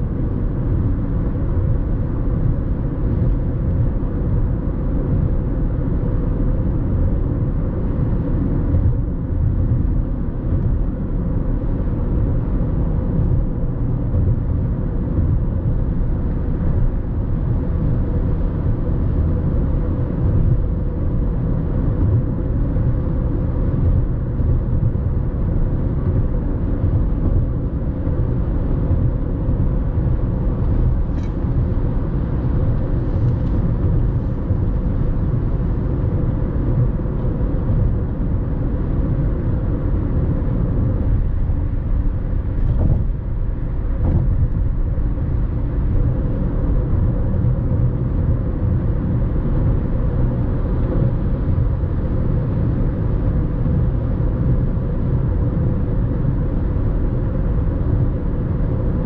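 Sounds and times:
faint engine hum: 0.0s - 59.0s
tyre and road noise: 7.7s - 55.7s.

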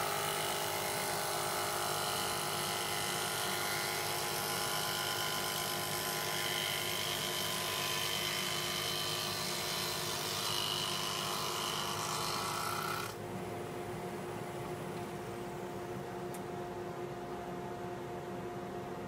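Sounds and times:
table saw humming: 0.0s - 13.2s.

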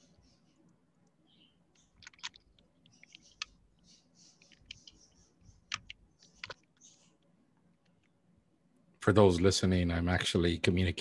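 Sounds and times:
computer keyboard and mouse clicks: 1.7s - 7.0s.

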